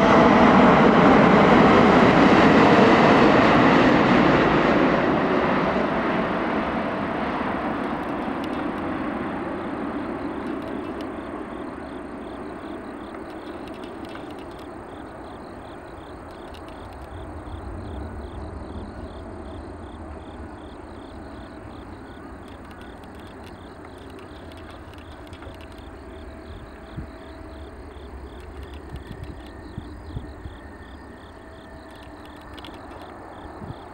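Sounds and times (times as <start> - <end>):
jet engine noise: 0.0 - 33.9
low steady rumble of landing jet: 0.0 - 33.9
insects chirping: 3.1 - 33.9.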